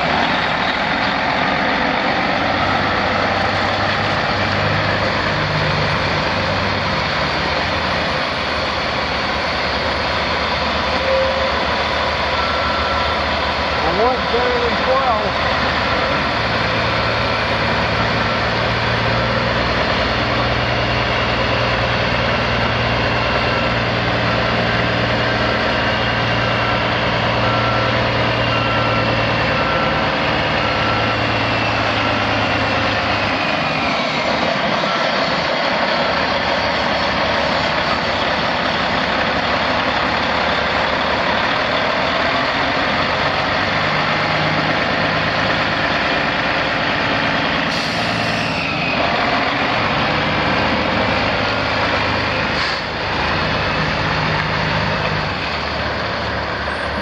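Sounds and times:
diesel truck idling: 0.0 - 57.0
short beeps: 12.4 - 13.2.

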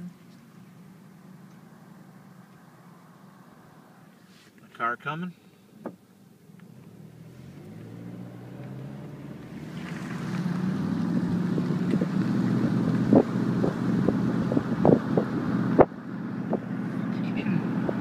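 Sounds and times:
car engine and road noise: 0.0 - 18.0
wind rushing over microphone: 9.2 - 16.8.

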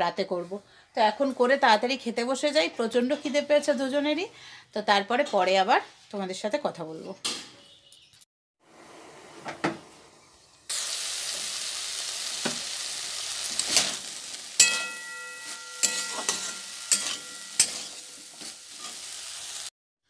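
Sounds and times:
vegetables sizzling in oil: 10.2 - 19.7
metal spatula scraping wok: 13.4 - 19.7
ringing tone: 14.6 - 17.6.

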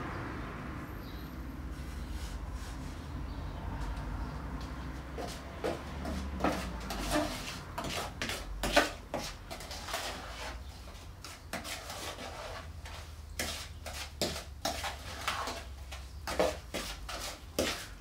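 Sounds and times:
tool scraping and stirring cement: 5.2 - 18.0.

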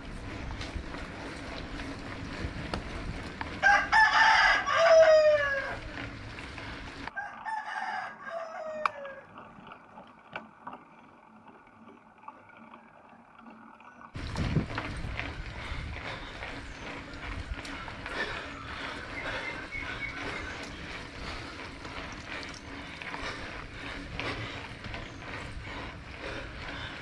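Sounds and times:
bicycle ride rumble: 0.0 - 27.0
rooster crowing: 3.6 - 6.0, 7.1 - 9.3.

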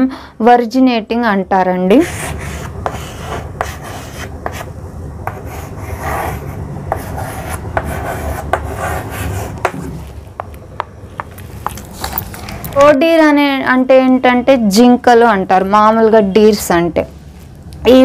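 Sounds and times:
chalk scratching on chalkboard: 2.0 - 4.7, 5.3 - 10.0
chalk tapping on board: 6.9 - 9.8.

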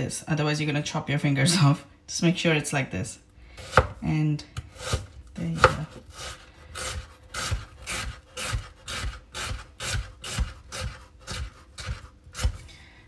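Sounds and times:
knife slicing onion on board: 3.6 - 12.6.

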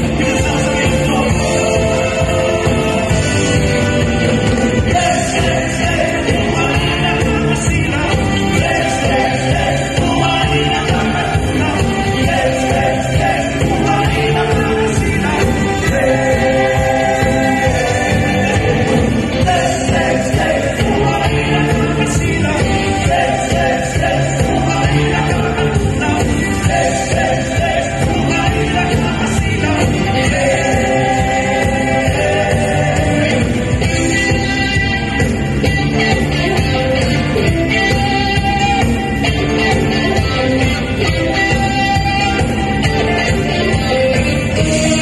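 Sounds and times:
live band playing dance-pop: 0.0 - 45.0
person singing: 4.8 - 35.2.

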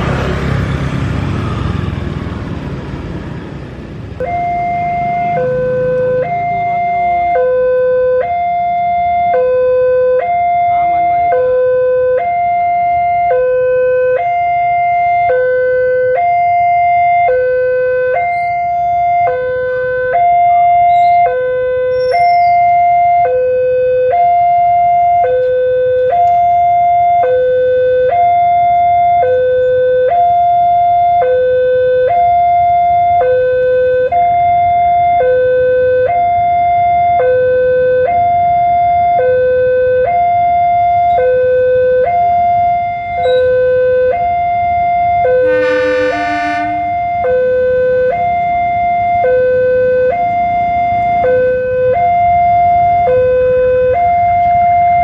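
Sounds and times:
level-crossing warning alarm: 0.0 - 55.0
locomotive horn blast: 45.3 - 48.2.

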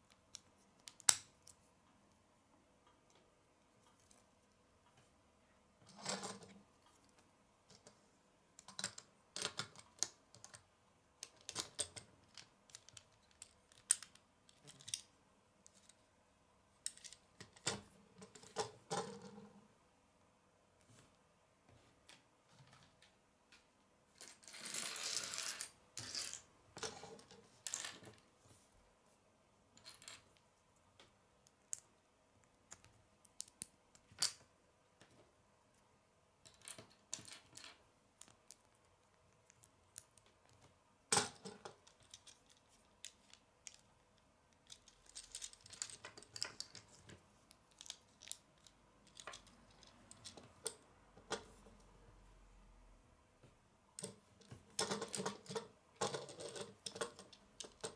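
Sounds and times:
plastic bricks clicking on wooden table: 54.0 - 57.9.

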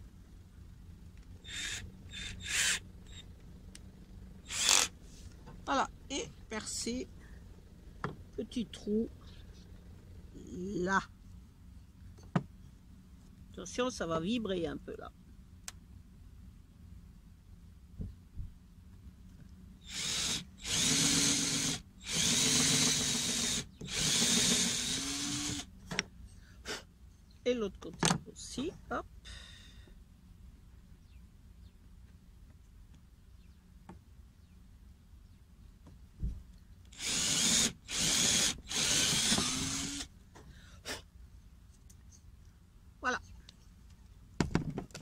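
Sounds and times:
cordless drill boring wood: 1.4 - 3.2, 4.4 - 4.9, 19.8 - 25.7, 36.9 - 40.1.

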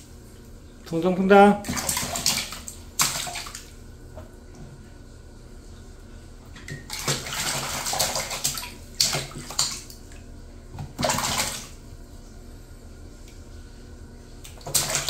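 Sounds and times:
baby splashing water: 1.6 - 3.7, 6.8 - 10.1, 14.5 - 15.0
hands slapping water: 1.6 - 3.8, 6.6 - 11.8, 14.4 - 15.0.

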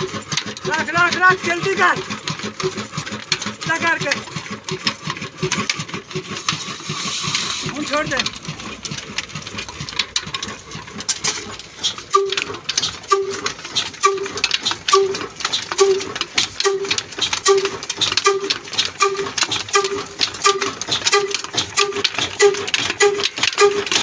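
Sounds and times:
diesel engine beating: 0.0 - 24.0
mechanical clatter: 0.0 - 24.0
squeaky whistle: 13.1 - 24.0.

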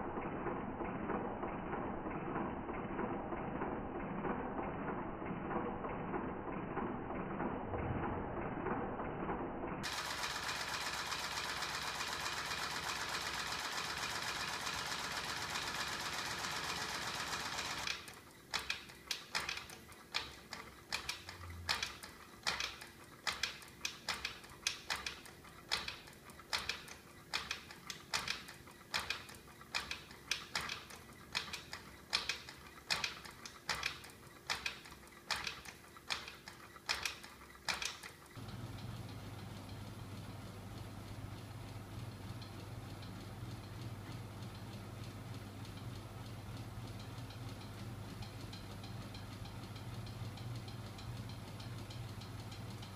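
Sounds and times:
sharp mechanical clacking: 9.8 - 39.0.

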